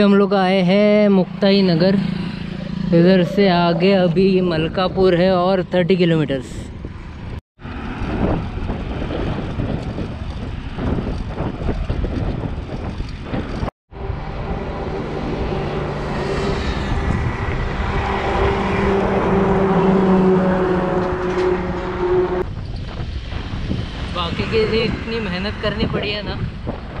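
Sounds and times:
truck engine drone: 0.7 - 5.9, 13.2 - 23.8
wind on microphone: 2.2 - 27.0.

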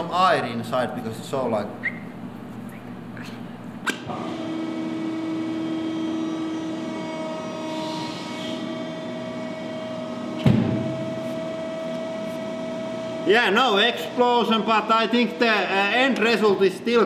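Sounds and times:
hydraulic machine humming: 0.0 - 17.0
loud thump: 10.4 - 11.0.

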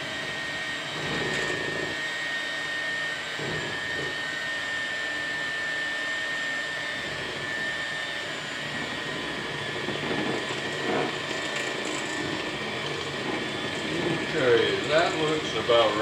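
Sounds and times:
electric hand mixer whining: 0.0 - 16.0.

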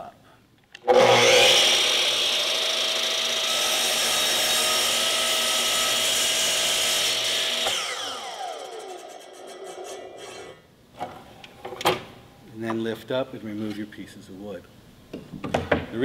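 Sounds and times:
miter saw whining: 0.9 - 10.6
saw blade cutting through board: 0.9 - 10.6.

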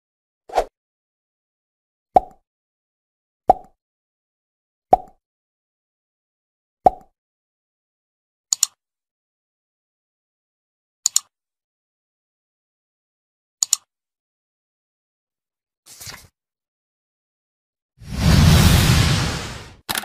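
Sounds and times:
mouse click effects: 8.5 - 8.8, 11.0 - 11.3, 13.6 - 13.9.

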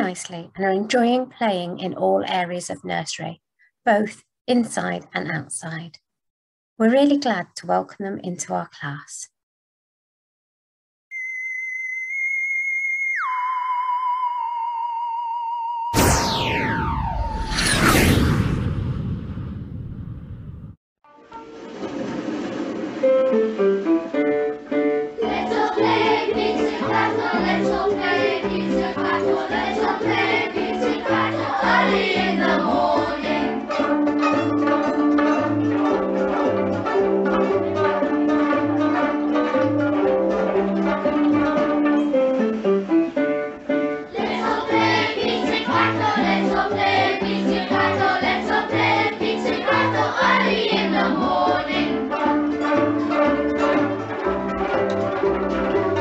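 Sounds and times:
children plucking violins pizzicato: 25.2 - 43.0, 44.1 - 56.0.

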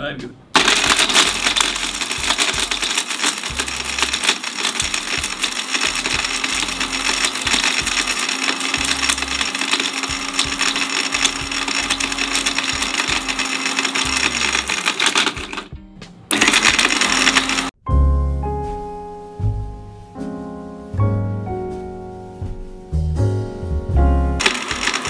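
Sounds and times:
hard pieces rattling in blades: 0.6 - 15.7, 16.3 - 17.7, 24.4 - 25.0
mixer grinder motor whine: 0.6 - 15.7, 16.3 - 17.7, 24.4 - 25.0.

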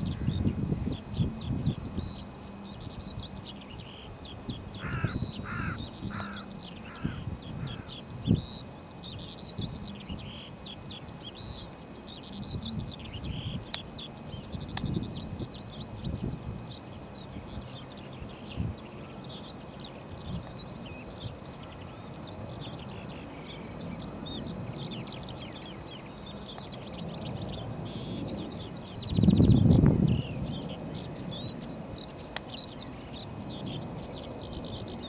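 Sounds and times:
songbirds chirping: 0.0 - 35.0
bird harsh calls: 4.7 - 8.1.

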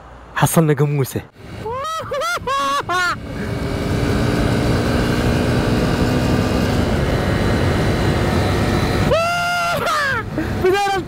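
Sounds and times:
road and wind noise: 0.0 - 11.0.

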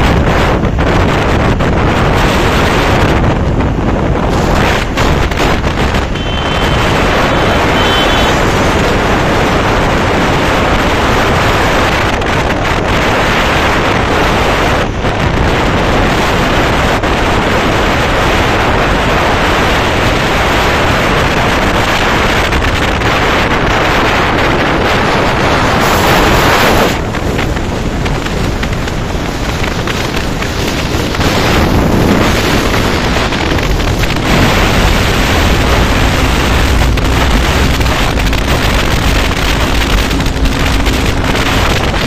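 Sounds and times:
motorcycle running with road noise: 0.0 - 42.0
wind rushing over microphone: 0.0 - 42.0
short high beep: 6.1 - 7.0, 7.7 - 8.4.

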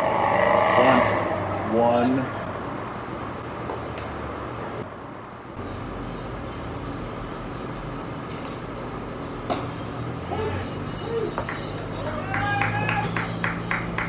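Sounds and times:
low rumble: 0.0 - 3.5.

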